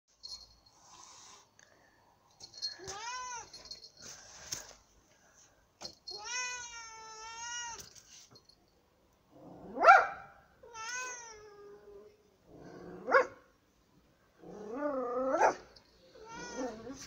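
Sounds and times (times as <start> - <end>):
cat yowling: 10.6 - 11.8, 16.2 - 17.0.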